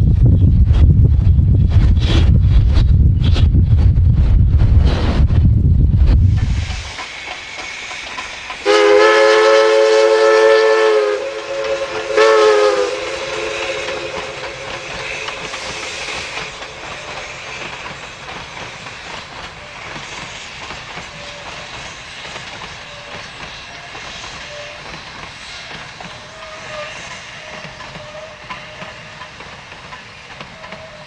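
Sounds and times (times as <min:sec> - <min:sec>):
train rolling clickety-clack: 0:00.0 - 0:31.0
steam locomotive chime whistle: 0:06.9 - 0:18.7, 0:22.7 - 0:31.0.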